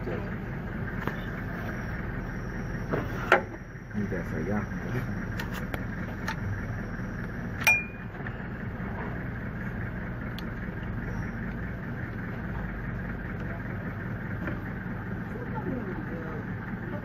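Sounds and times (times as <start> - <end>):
metallic clink with ring: 7.6 - 8.1.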